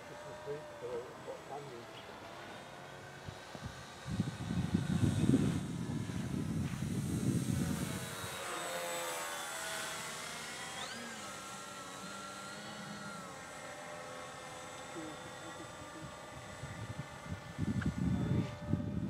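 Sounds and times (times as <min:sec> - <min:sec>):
model plane motor whining: 0:00.0 - 0:19.0
wind rumble on microphone: 0:03.2 - 0:08.4, 0:16.0 - 0:19.0.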